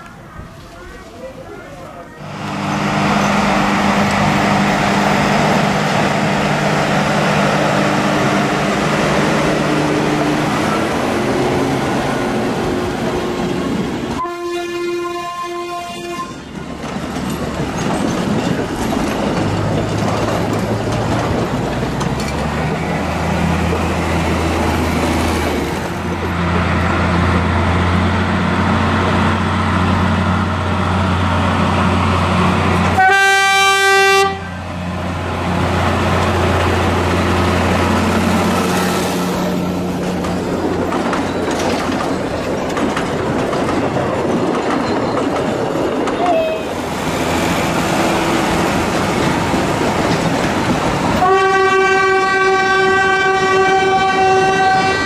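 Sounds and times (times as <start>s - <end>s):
diesel engine drone: 2.2s - 14.2s
train horn: 14.2s - 16.4s, 32.9s - 34.7s, 46.2s - 46.8s, 51.2s - 55.0s
wagons rolling: 39.6s - 51.2s.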